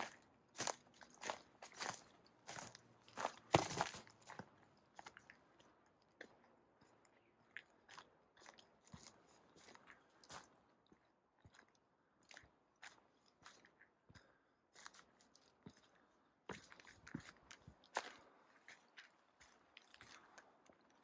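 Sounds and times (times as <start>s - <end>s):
footsteps crunching on dirt trail: 0.0s - 5.2s, 7.9s - 10.6s, 16.5s - 20.9s.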